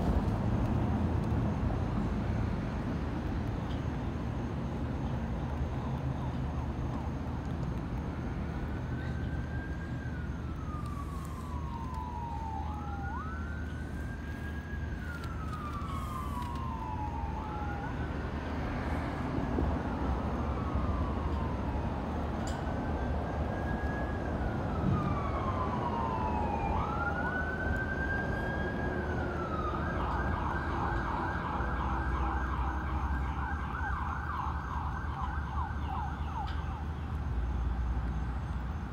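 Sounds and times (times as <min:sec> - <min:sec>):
emergency siren wailing and yelping: 0:08.4 - 0:37.2.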